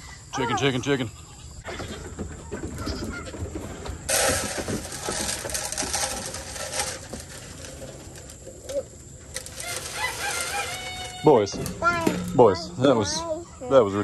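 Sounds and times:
goats jostling: 0.6 - 14.0
dry feed pouring into feeder: 4.1 - 8.8, 9.4 - 11.4
chickens cooing: 7.8 - 11.8.

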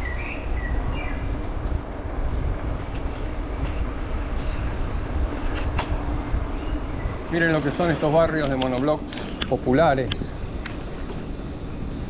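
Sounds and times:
wind and tyre rumble: 0.0 - 12.0
bike clicks and rattles: 2.6 - 12.0.

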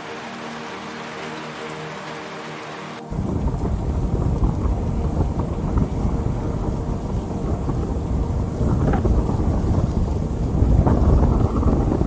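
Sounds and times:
rain: 0.0 - 12.0
deep steady rumble: 3.0 - 12.0.

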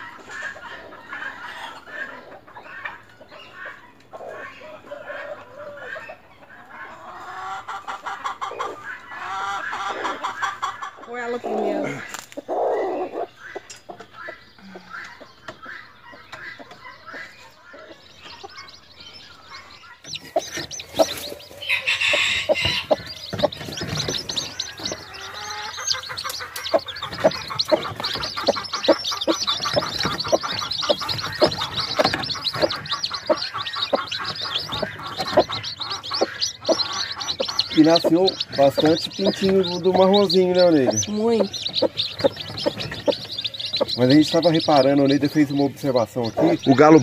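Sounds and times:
chicks peeping: 0.0 - 47.0
hen clucking: 0.0 - 47.0
rustling: 20.1 - 37.2.

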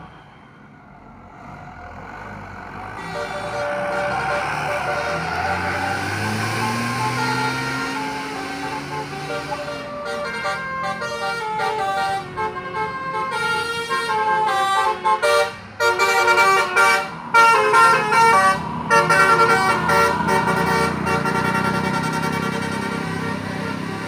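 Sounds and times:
bus engine rumbling: 0.0 - 24.0
musical air horn tune: 3.0 - 24.0.

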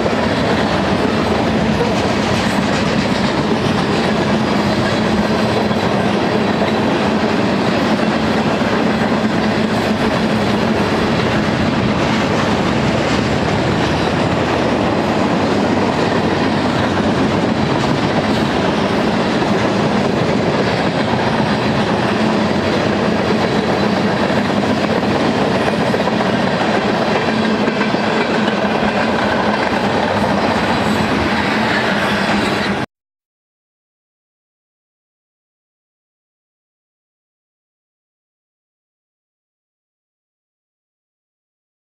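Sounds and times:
steel wheels rumbling on rails: 0.0 - 32.9.

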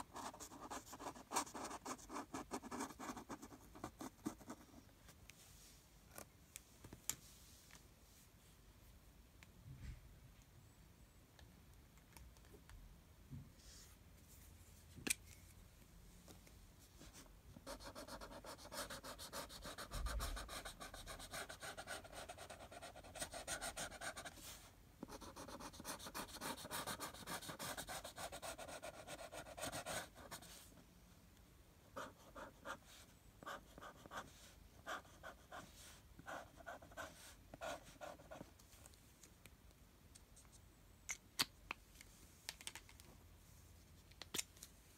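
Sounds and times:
felt-tip marker scribbling on paper: 25.1 - 30.5.

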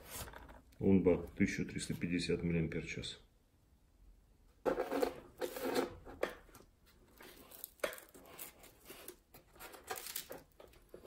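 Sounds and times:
rustling and scraping of foam: 0.0 - 0.6, 4.6 - 6.2, 6.9 - 11.0.

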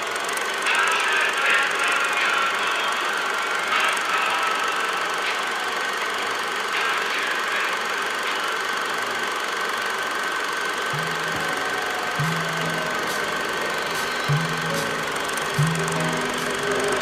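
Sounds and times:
high whine: 10.9 - 17.0
music: 11.0 - 17.0.

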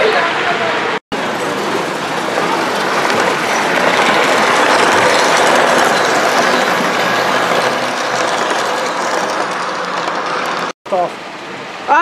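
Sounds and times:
model train wheels rattling on track: 1.2 - 10.8.

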